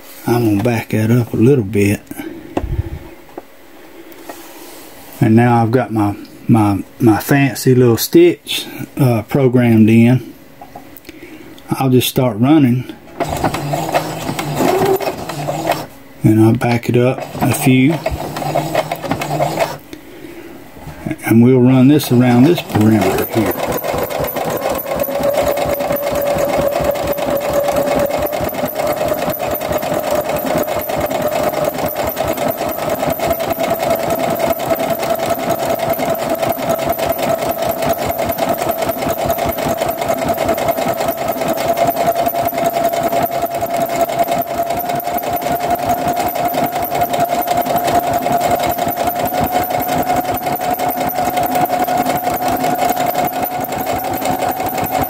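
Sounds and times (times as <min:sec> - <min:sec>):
sewing machine motor whine: 0:13.2 - 0:19.9, 0:21.6 - 0:55.0
rapid needle strokes: 0:22.2 - 0:33.1.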